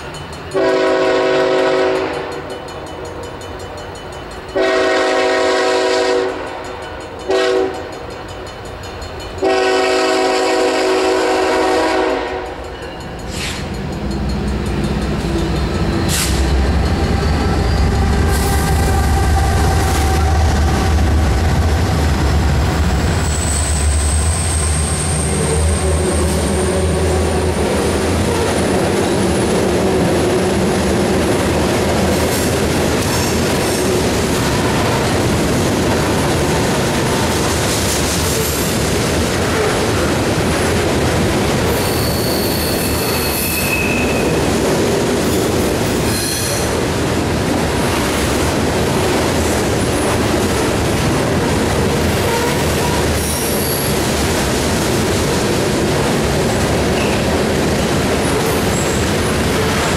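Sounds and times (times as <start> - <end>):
train wheels rolling: 6.4 - 59.9
locomotive engine drone: 13.2 - 31.9
high wheel squeal: 15.0 - 20.3, 23.1 - 27.3, 41.7 - 44.4, 52.2 - 54.0.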